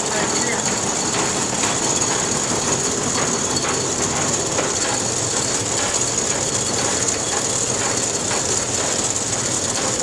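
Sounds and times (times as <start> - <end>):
mill machinery clatter and rattle: 0.0 - 10.0.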